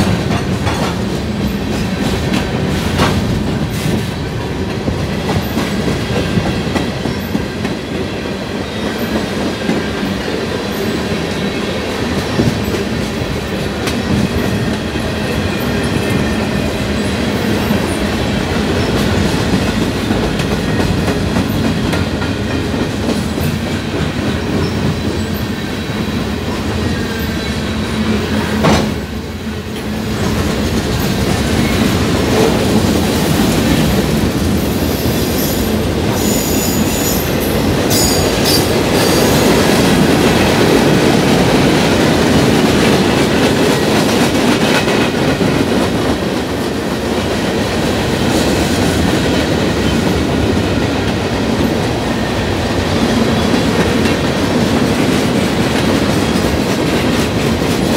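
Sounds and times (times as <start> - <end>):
train wheels clattering over rails: 0.0 - 57.9.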